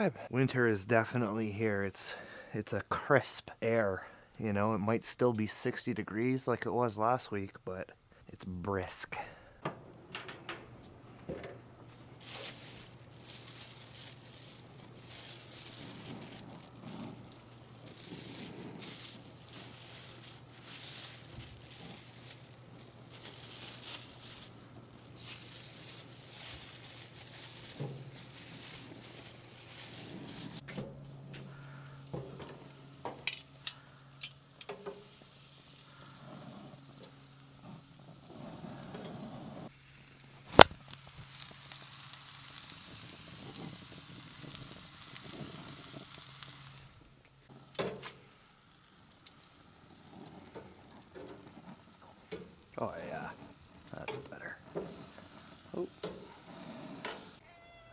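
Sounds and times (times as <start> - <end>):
meat sizzling on grill: 10.1 - 57.4.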